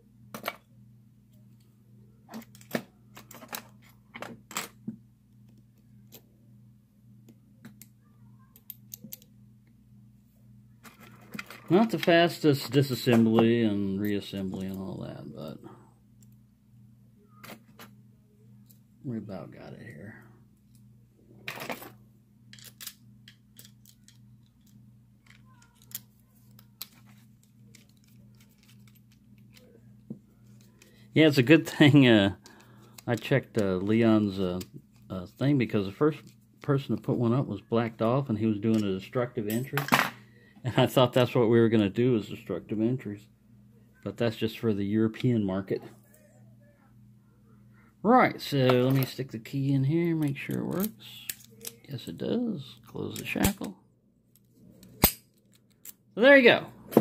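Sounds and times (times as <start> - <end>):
steady low hum: 0.0 - 57.0
small metal clicks of lock parts: 8.5 - 9.3, 22.5 - 29.7, 54.3 - 56.0.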